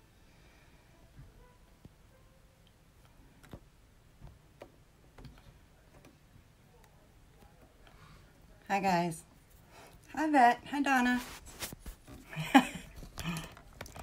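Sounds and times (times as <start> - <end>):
faint clicks and taps: 2.6 - 8.0, 11.6 - 14.0.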